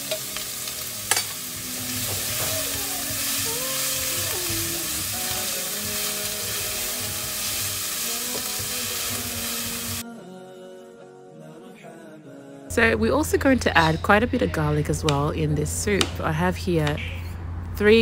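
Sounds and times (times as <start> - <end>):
onion sizzling in oil: 0.0 - 10.0
soft background music: 0.0 - 17.0.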